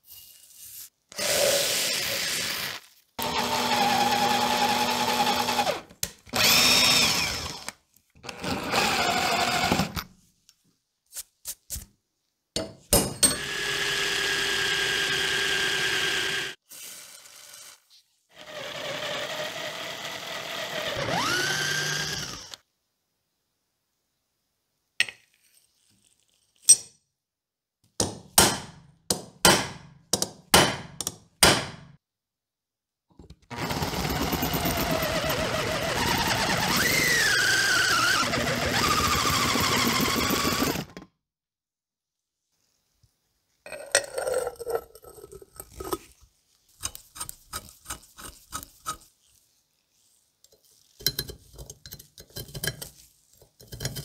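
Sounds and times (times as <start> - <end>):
drill cutting steel with whine: 1.2 - 5.8, 6.4 - 7.7, 13.4 - 16.6, 18.4 - 22.6, 33.6 - 40.9.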